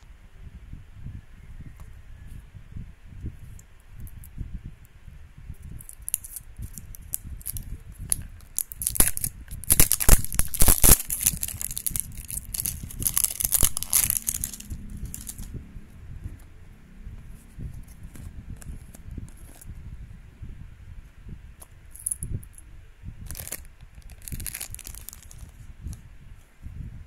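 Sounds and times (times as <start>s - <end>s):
plastic wrapper crinkling: 5.8s - 15.5s, 23.3s - 25.6s.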